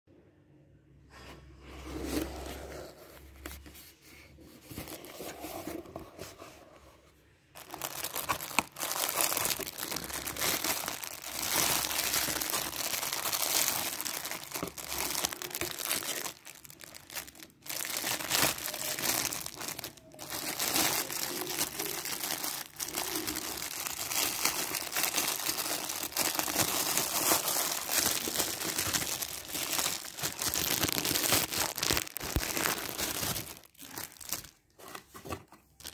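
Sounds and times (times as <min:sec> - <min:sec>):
plastic bag crinkling: 0:07.5 - 0:35.9.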